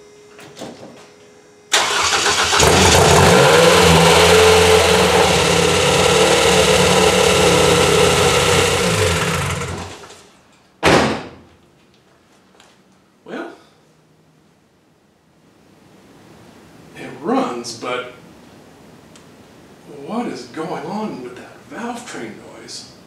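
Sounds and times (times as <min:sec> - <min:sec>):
engine starter cranking: 0:01.7 - 0:10.1
loud valve-train noise: 0:01.7 - 0:10.1
car engine running: 0:01.8 - 0:10.1.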